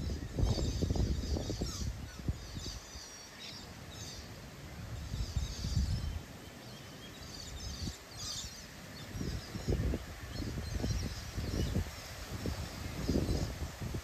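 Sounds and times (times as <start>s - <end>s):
wind buffeting microphone: 0.0s - 3.0s, 4.8s - 6.3s, 7.5s - 14.0s
birds chirping: 0.0s - 13.7s.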